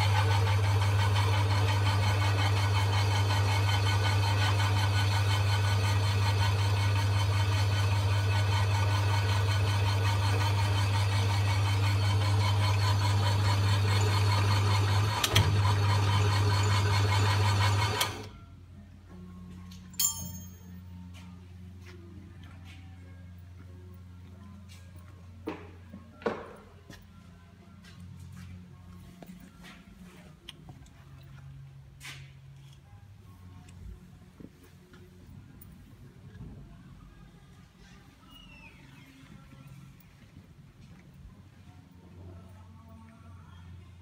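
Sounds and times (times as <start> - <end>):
lathe motor humming: 0.0 - 18.3.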